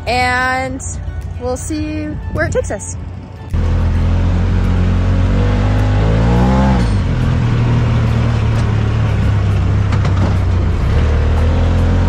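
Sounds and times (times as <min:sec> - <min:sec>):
vehicle engine revving: 0:03.1 - 0:12.0.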